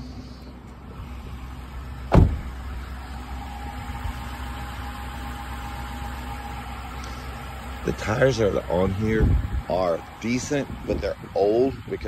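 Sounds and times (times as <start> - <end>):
car engine idling: 0.0 - 12.0
loud thump: 2.1 - 2.6.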